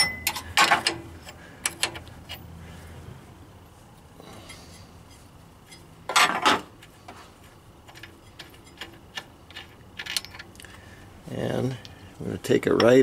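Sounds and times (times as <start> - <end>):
metal clicks and clinks: 0.0 - 2.5, 7.9 - 10.6
metal scraping clatter: 7.8 - 10.4.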